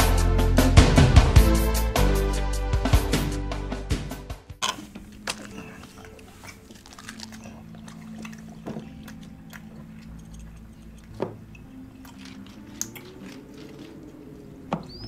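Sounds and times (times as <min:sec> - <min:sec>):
soft wet handling sounds: 0:04.6 - 0:15.0.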